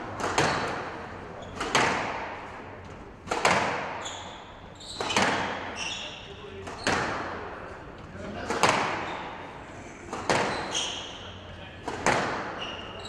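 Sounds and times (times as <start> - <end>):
squash ball cracks: 0.1 - 1.0, 1.6 - 2.6, 3.2 - 4.0, 8.4 - 9.1, 10.1 - 10.7, 11.8 - 12.6
shoes squeaking on court: 0.4 - 0.8, 1.4 - 1.8, 3.8 - 7.1, 8.8 - 9.4, 10.2 - 11.4, 12.0 - 13.0.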